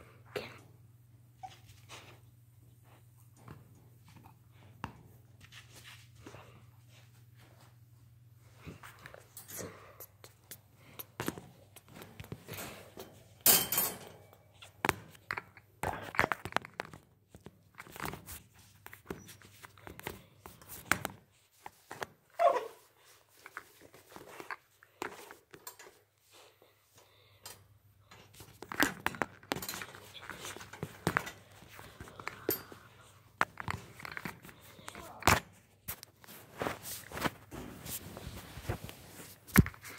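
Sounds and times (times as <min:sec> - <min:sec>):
rustling handling noise: 0:10.3 - 0:39.9.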